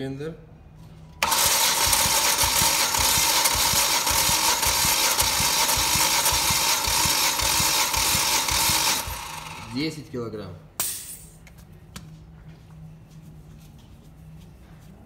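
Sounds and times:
engine cranking on starter: 1.2s - 9.8s.

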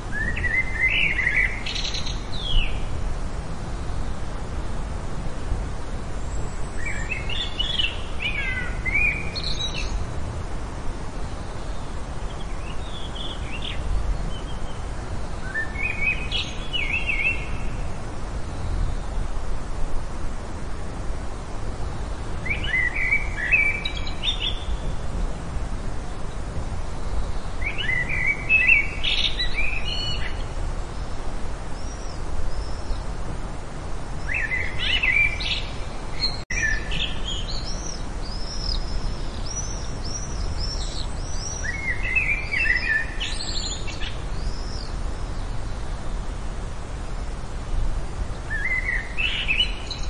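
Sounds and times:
background hiss and rumble: 0.0s - 50.0s.

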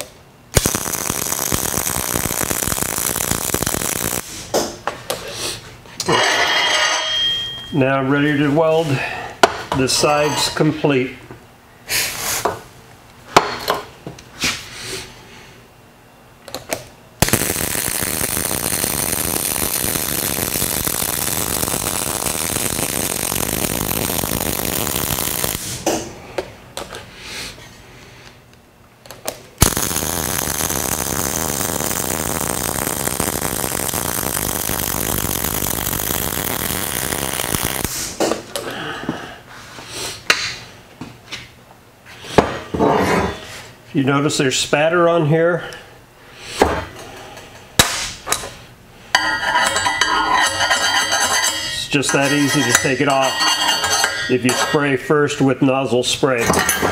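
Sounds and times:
welder running weld beads: 0.0s - 4.6s, 17.2s - 25.8s, 29.6s - 38.2s, 49.1s - 56.9s.

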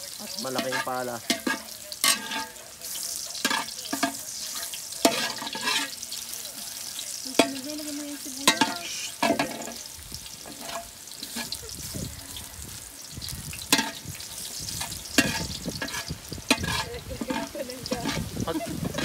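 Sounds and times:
garlic sizzling in oil: 0.0s - 19.0s
metal spatula scraping wok: 0.2s - 19.0s
spatula clanking on wok: 0.3s - 2.6s, 3.3s - 6.1s, 7.3s - 7.8s, 8.4s - 11.7s, 13.6s - 14.1s, 14.7s - 19.0s.

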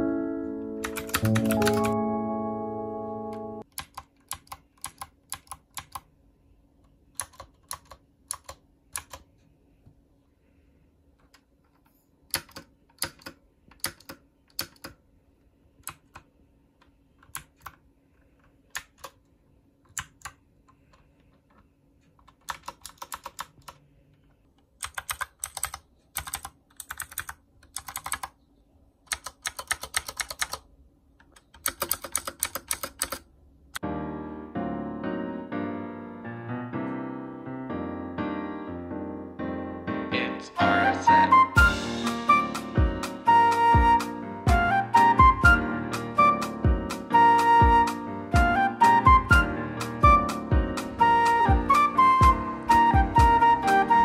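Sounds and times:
mechanical keyboard typing: 0.8s - 2.0s, 3.6s - 6.1s, 7.1s - 9.3s, 12.3s - 15.0s, 15.8s - 16.3s, 17.2s - 17.8s, 18.7s - 19.2s, 19.9s - 21.1s, 22.2s - 23.8s, 24.8s - 28.4s, 29.1s - 33.3s.

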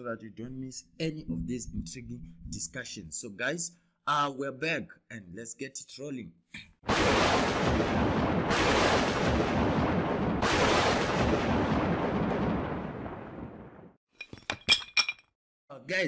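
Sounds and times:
heavy booming hits: 6.9s - 13.8s.

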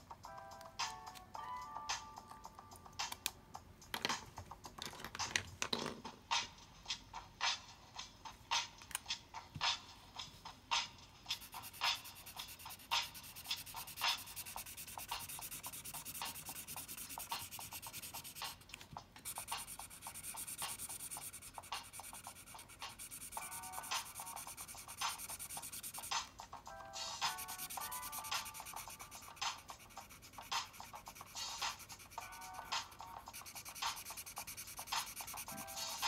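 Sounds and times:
drawing tool scratching paper: 11.3s - 26.3s, 27.1s - 36.0s.

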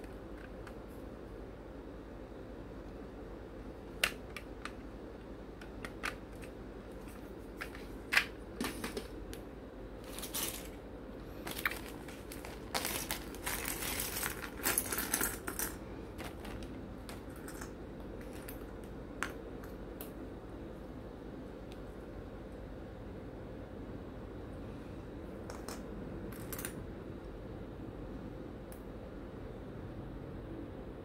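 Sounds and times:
plastic parts clicking and clattering: 5.6s - 9.2s, 11.4s - 19.4s
plastic zip bag rustling: 10.0s - 10.8s, 11.4s - 17.6s.

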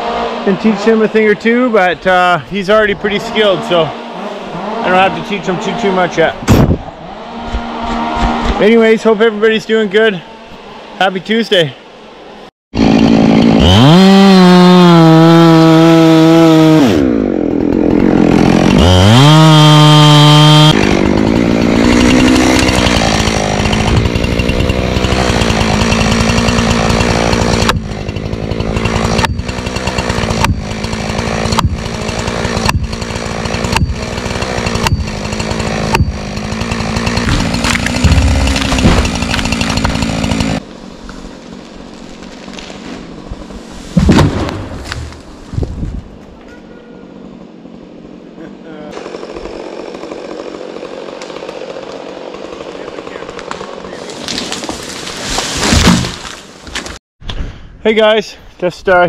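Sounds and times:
chainsaw cutting tree trunk: 2.8s - 8.7s, 12.8s - 45.3s, 48.9s - 57.0s
blows driving wedge into cut: 6.4s - 8.6s, 18.0s - 40.6s
chainsaw idling: 12.8s - 40.7s, 48.8s - 54.2s.

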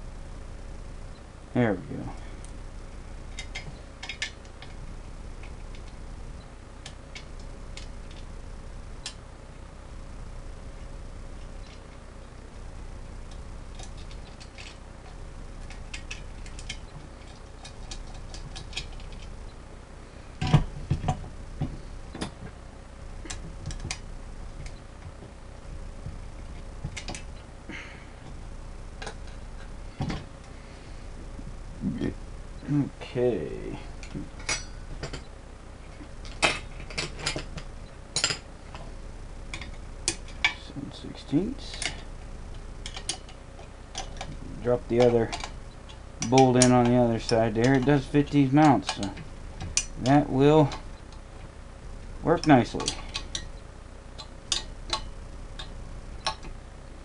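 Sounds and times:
small metal clicks: 3.4s - 4.8s, 42.8s - 51.2s, 54.2s - 56.6s.

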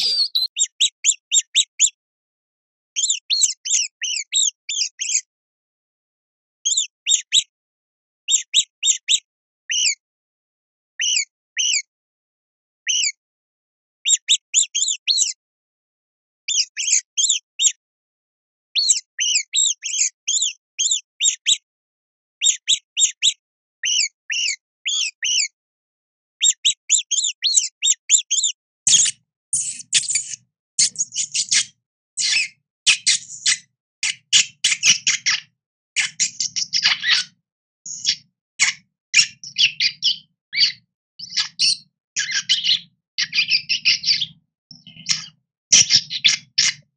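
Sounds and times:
rodent squeaking: 0.0s - 2.0s, 3.0s - 5.3s, 6.6s - 7.5s, 8.3s - 10.0s, 11.0s - 11.9s, 12.9s - 13.2s, 14.0s - 15.4s, 16.5s - 17.8s, 18.8s - 21.6s, 22.4s - 25.6s, 26.4s - 46.9s.

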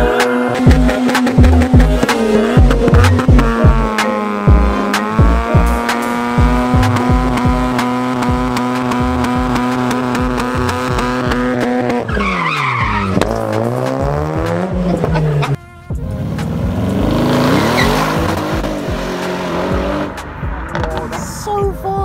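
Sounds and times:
car engine at high revs: 0.0s - 21.2s
music with thumping bass beat: 0.0s - 22.0s
tyres squealing: 9.8s - 15.6s, 17.3s - 18.8s.

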